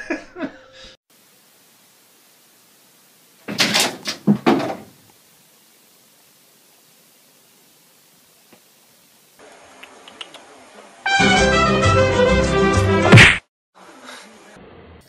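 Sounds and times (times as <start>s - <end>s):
faint hiss: 1.1s - 11.0s
knocks and thumps: 3.4s - 5.0s.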